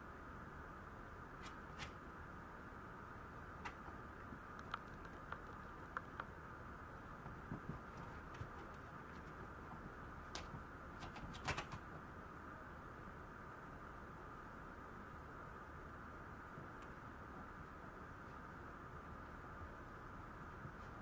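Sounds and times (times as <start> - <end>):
steady hum: 0.0 - 21.0
puppy claws clicking on floor: 3.6 - 6.3.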